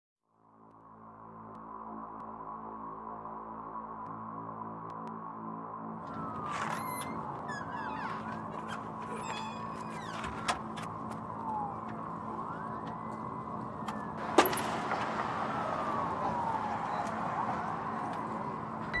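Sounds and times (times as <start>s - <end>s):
distant siren: 6.0s - 19.0s.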